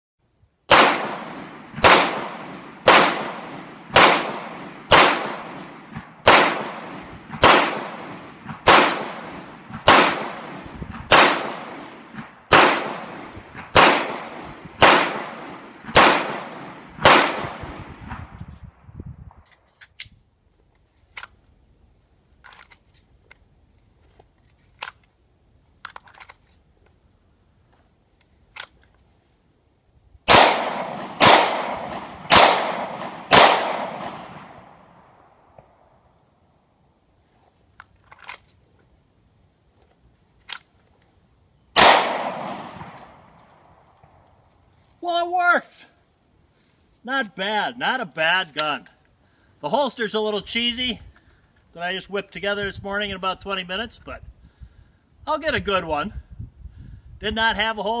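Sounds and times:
pistol shots echoing: 0:00.7 - 0:18.1, 0:30.3 - 0:35.6, 0:41.8 - 0:43.3.

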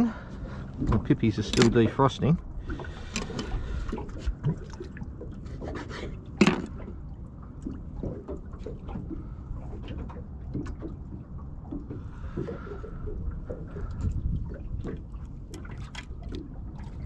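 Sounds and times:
wind and water rumble: 0:00.0 - 0:17.0.

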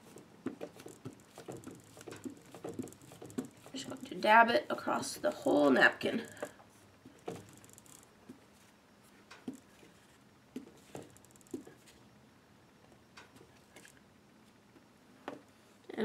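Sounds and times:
ink pad tapping on paper: 0:00.4 - 0:03.7.

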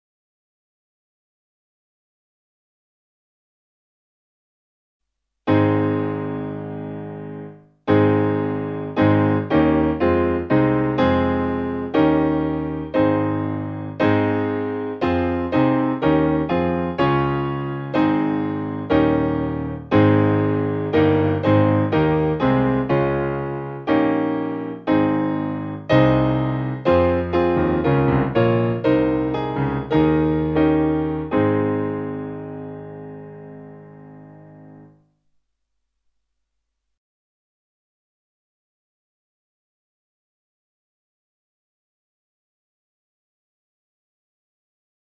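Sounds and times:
slow piano music: 0:05.5 - 0:35.5.

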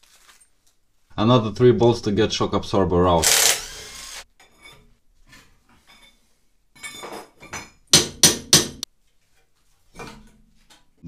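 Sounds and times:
hammer striking metal suspension: 0:08.0 - 0:08.8.

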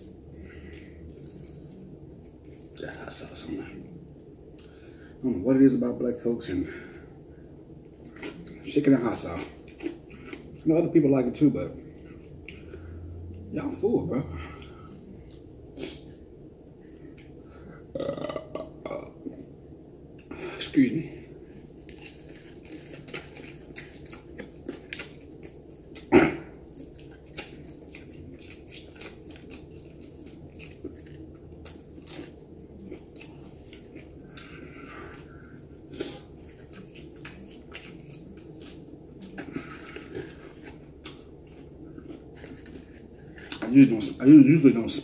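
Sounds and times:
person chewing and smacking: 0:00.0 - 0:03.4, 0:07.8 - 0:10.8, 0:21.5 - 0:43.8.

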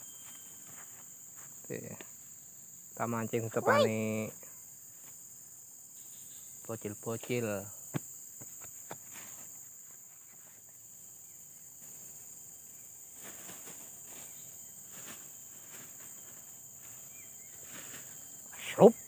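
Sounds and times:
high-pitched insect chorus: 0:00.0 - 0:19.0
faint rustles and knocks: 0:08.0 - 0:10.8, 0:13.1 - 0:18.4.

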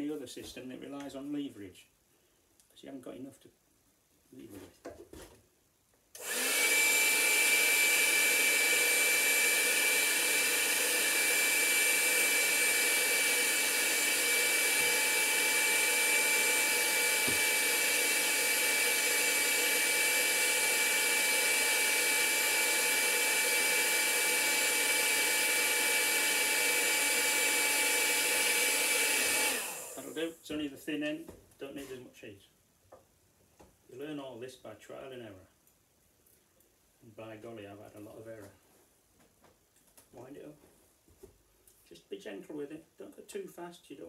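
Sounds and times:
heat gun whining: 0:06.2 - 0:30.2.

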